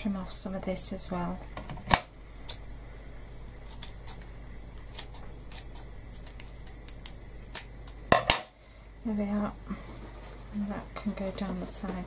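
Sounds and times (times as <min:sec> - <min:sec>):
scissors snipping feather barbs: 0:04.8 - 0:08.0.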